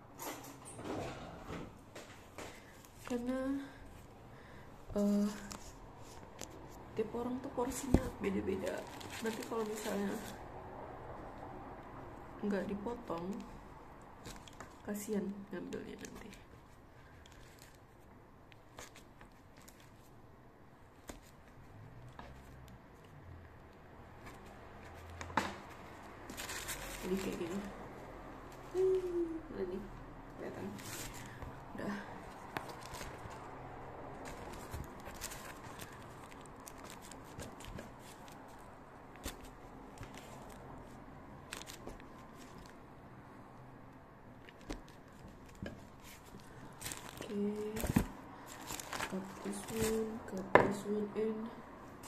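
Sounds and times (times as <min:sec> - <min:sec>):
pastries tapping and crunching: 0:30.7 - 0:42.9, 0:43.9 - 0:50.9
pastry taps and crackles: 0:44.4 - 0:50.9.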